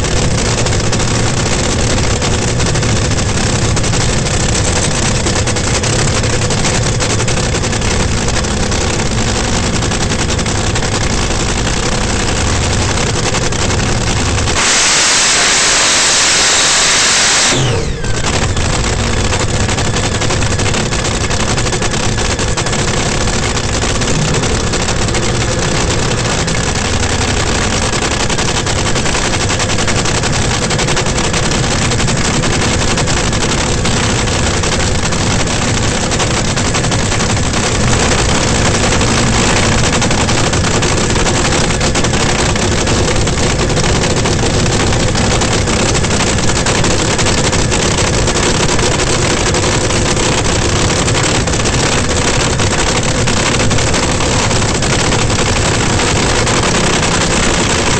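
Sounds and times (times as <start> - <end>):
dragster engine idling: 0.0 - 57.9.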